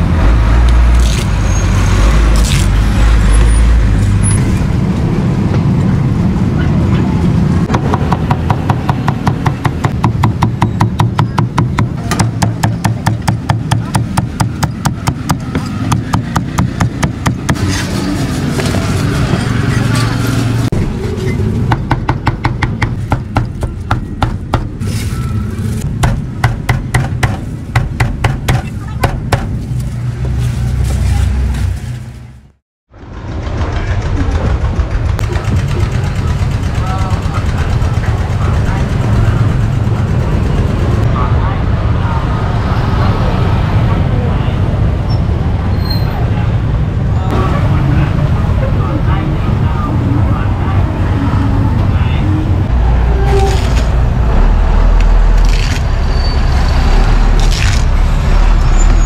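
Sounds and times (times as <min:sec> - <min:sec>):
low rumble of street traffic: 0:00.0 - 0:59.0.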